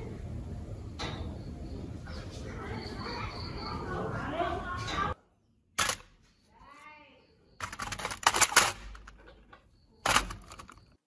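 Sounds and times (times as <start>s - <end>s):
metal parts clicking on workbench: 5.8s - 6.1s, 7.6s - 11.0s.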